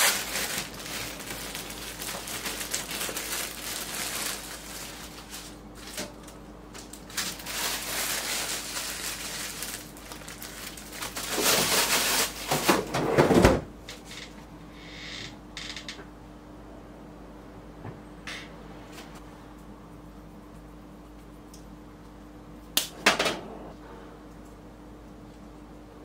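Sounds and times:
bread packaging rustling: 0:00.0 - 0:13.0
faint steady hum: 0:00.0 - 0:26.0.

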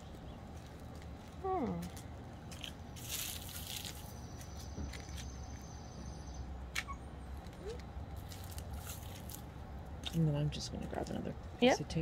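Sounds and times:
tape crinkling and rustling: 0:00.6 - 0:05.3, 0:07.4 - 0:09.5.

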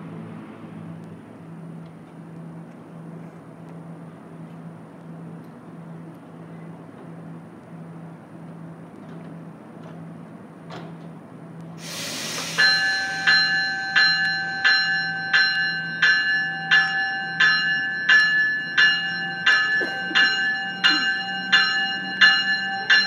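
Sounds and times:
air hiss burst: 0:11.8 - 0:13.8
train warning bell ringing: 0:11.8 - 0:23.0.

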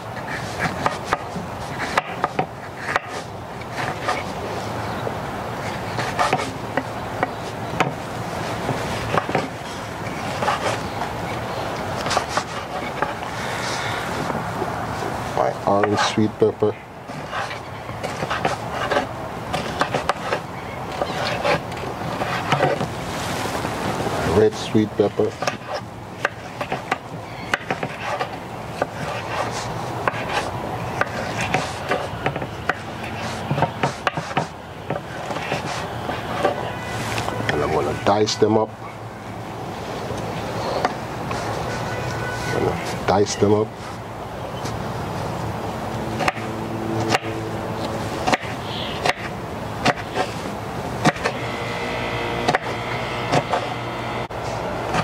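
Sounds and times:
background hum: 0:44.9 - 0:55.0.

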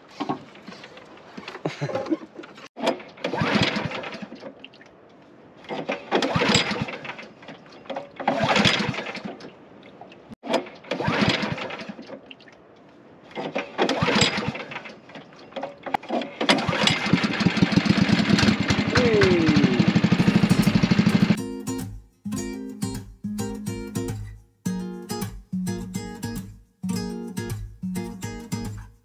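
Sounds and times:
pull cord starter: 0:16.4 - 0:21.4
boat engine running: 0:17.2 - 0:21.4.

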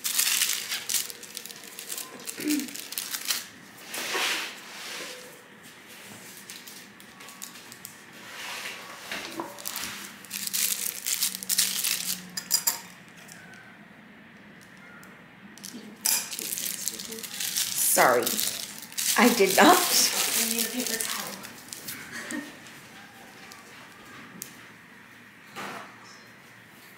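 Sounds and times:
plastic bags crinkling: 0:00.0 - 0:04.0, 0:06.1 - 0:08.2, 0:09.1 - 0:13.5, 0:15.6 - 0:24.5
tools clinking on a table: 0:12.4 - 0:13.4, 0:16.0 - 0:16.4.

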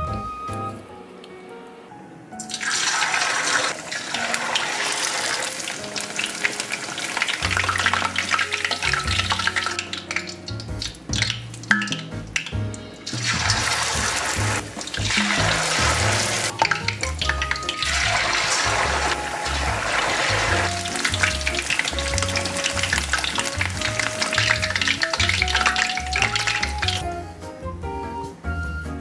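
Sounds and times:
background music with a beat: 0:00.0 - 0:00.9, 0:08.8 - 0:29.0
food deep-frying in oil: 0:02.4 - 0:27.0.

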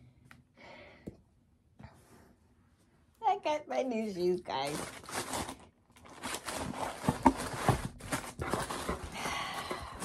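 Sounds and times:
cardboard rustling: 0:04.6 - 0:10.0.

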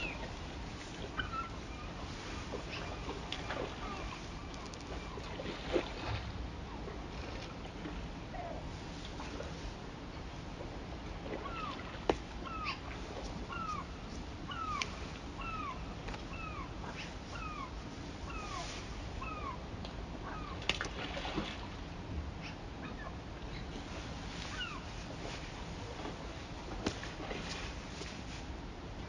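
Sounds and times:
bird calling: 0:00.0 - 0:00.4, 0:01.0 - 0:05.5, 0:11.4 - 0:13.9, 0:14.5 - 0:19.6.

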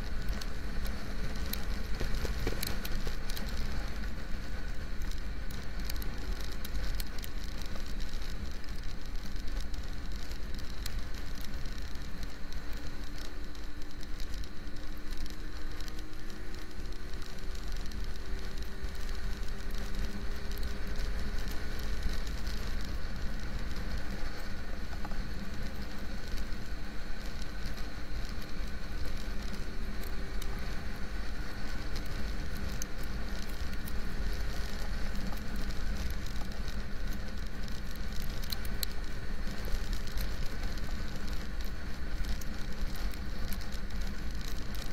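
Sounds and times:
raindrops hitting camera: 0:00.0 - 0:44.9
wind rumble on microphone: 0:00.0 - 0:44.9.

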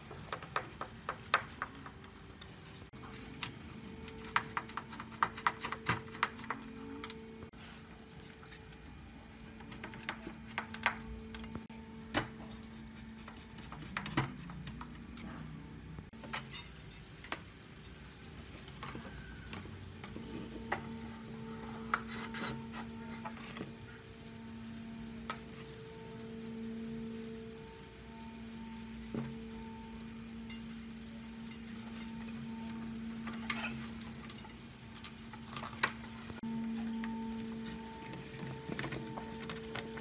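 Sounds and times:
clicks taps and rubbing of parts: 0:00.0 - 0:07.2, 0:08.2 - 0:15.5
faint steady hum: 0:00.0 - 0:40.0.

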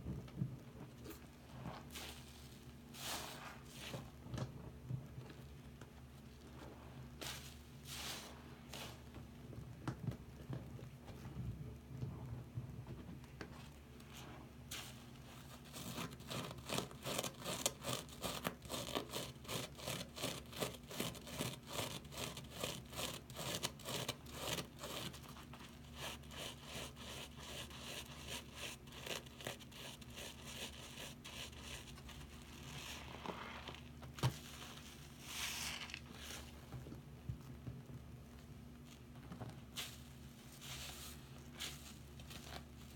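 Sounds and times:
wet sponge squishing: 0:01.5 - 0:04.2, 0:24.0 - 0:36.7.

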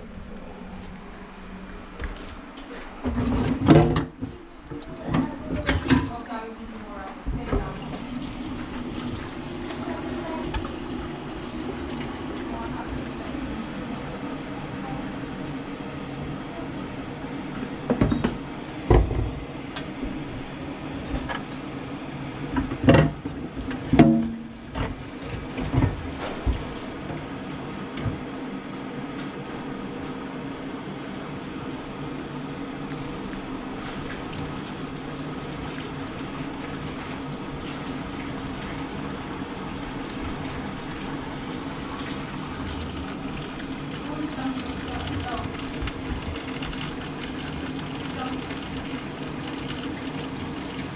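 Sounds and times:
water rushing into sink drain: 0:07.6 - 0:28.2, 0:32.7 - 0:50.9.

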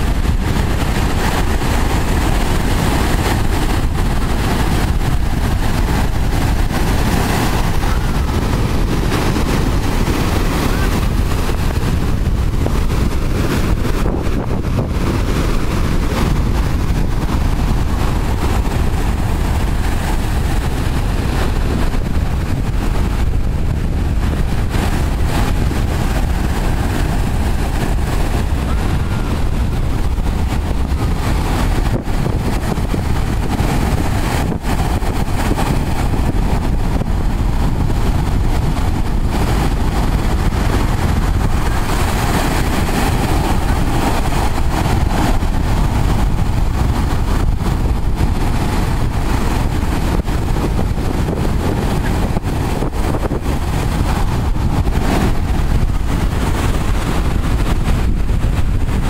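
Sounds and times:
storm surf breaking: 0:00.0 - 0:59.0
wind buffeting microphone: 0:00.0 - 0:59.0.

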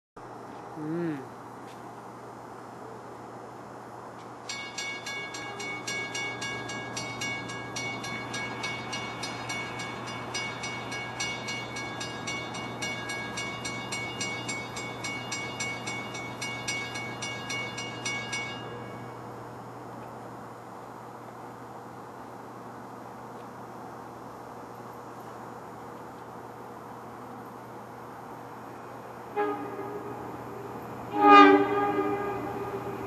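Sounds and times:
railroad crossing bell ringing: 0:04.4 - 0:19.4, 0:29.3 - 0:33.0.

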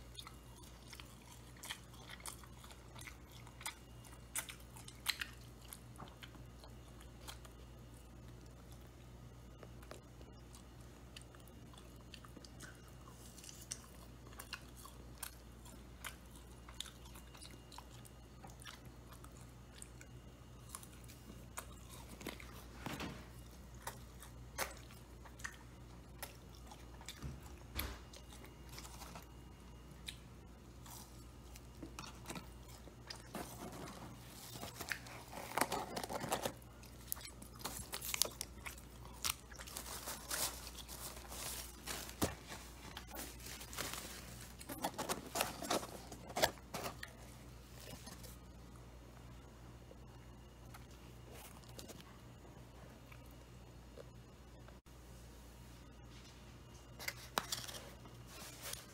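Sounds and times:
chewing and crunching: 0:00.0 - 0:54.3, 0:56.6 - 0:58.9
plastic packet crinkling: 0:33.2 - 0:47.2.

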